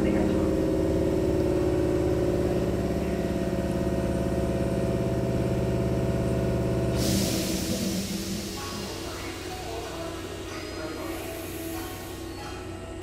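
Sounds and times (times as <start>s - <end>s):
train equipment hum: 0.0s - 13.0s
burst of hiss: 7.0s - 9.8s.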